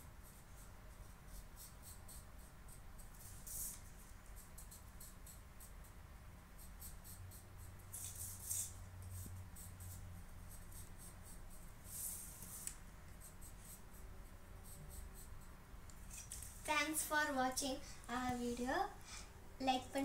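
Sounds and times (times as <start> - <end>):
pencil scratching on paper: 0.2 - 5.8, 6.6 - 16.8.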